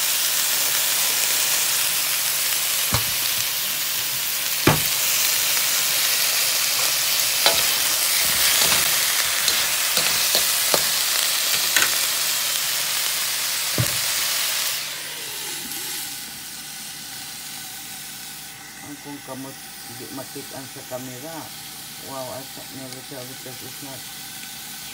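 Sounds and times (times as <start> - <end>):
vegetables sizzling in a pot: 0.0 - 24.9
spoon knocking a pot: 4.7 - 5.0.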